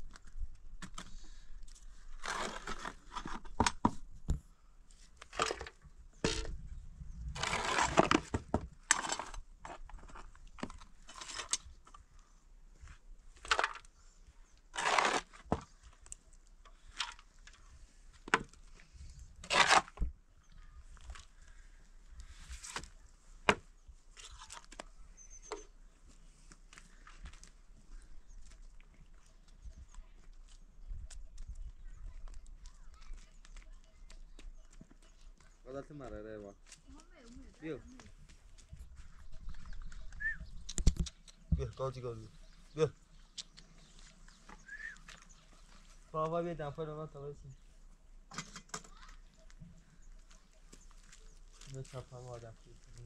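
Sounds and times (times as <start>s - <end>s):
shovel scraping ash: 2.0s - 3.5s, 7.4s - 11.8s, 14.7s - 15.8s, 19.4s - 20.0s.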